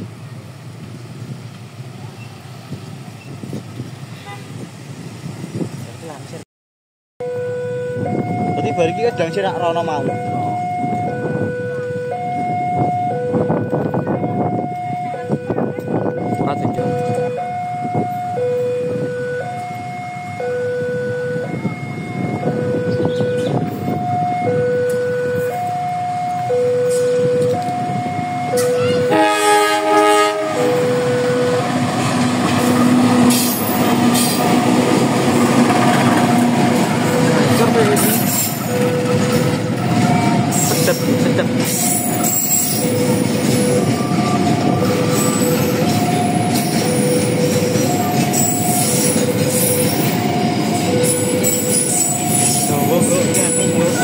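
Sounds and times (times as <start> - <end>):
road traffic: 0.0 - 6.4, 7.2 - 54.0
two-tone crossing alarm: 7.2 - 54.0.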